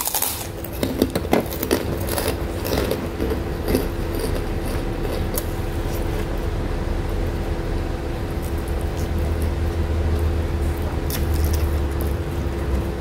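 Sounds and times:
cracker crumbling by hand: 0.0s - 6.2s
crunching while eating: 0.0s - 13.0s
steady low hum: 0.0s - 13.0s.

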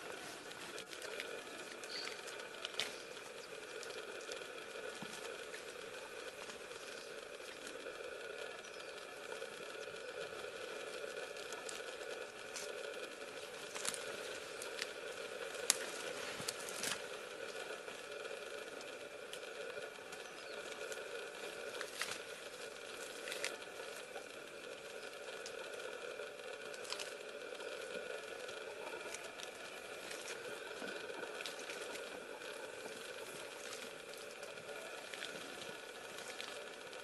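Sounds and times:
leaves and stems rustling: 0.0s - 37.0s
steady hiss: 0.0s - 37.0s
sharp snaps of stems: 0.7s - 4.4s, 13.6s - 17.1s.

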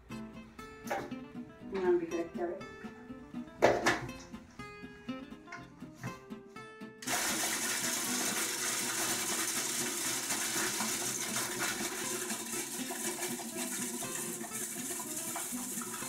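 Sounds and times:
food processor grinding bread: 7.0s - 16.0s.

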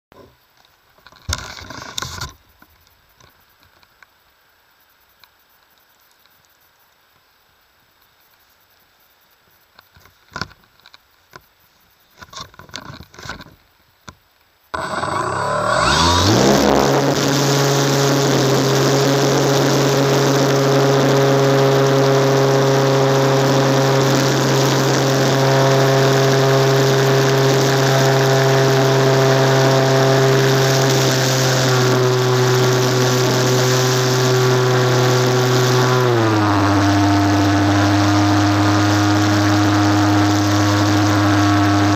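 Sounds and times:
model plane motor whine: 14.7s - 41.9s.

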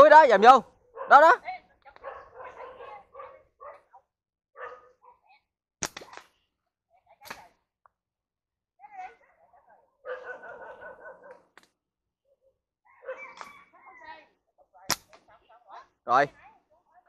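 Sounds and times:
dog barking and whining: 0.9s - 1.4s, 2.0s - 3.9s, 4.6s - 5.2s, 10.0s - 11.4s, 12.9s - 13.9s
slingshot bands cracking: 5.8s - 6.4s, 7.2s - 7.6s, 14.9s - 15.3s.

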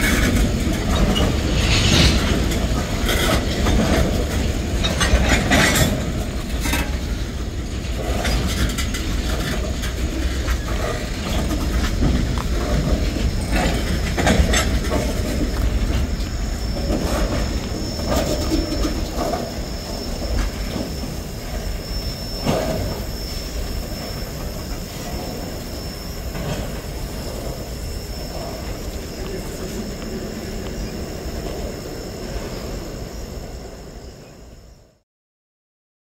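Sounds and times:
freight train rumbling past: 0.0s - 34.9s
wheels clicking over rail joints: 2.2s - 21.8s.

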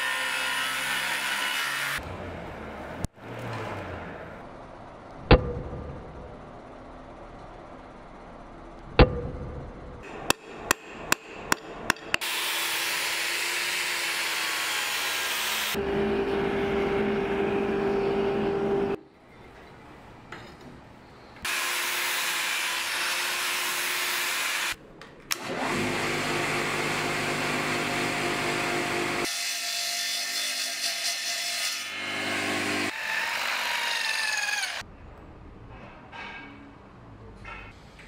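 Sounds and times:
power tool motor hum: 24.5s - 29.3s.

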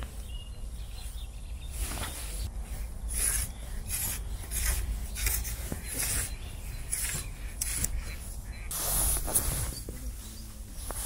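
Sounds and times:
fishing pole sections rasping: 2.3s - 9.8s.

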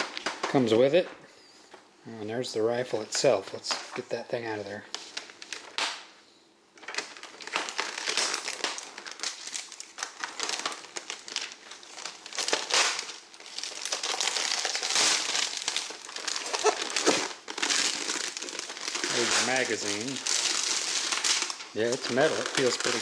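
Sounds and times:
plastic film crinkling: 0.0s - 1.1s, 3.2s - 23.0s.

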